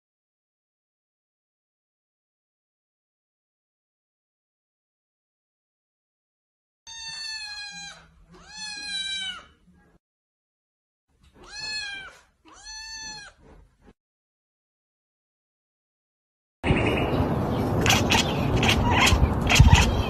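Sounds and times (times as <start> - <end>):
cat meowing: 6.9 - 9.6, 11.4 - 13.4, 17.8 - 20.0.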